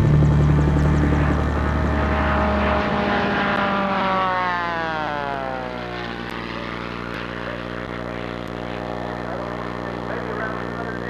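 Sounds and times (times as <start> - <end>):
propeller plane passing: 0.0 - 11.0.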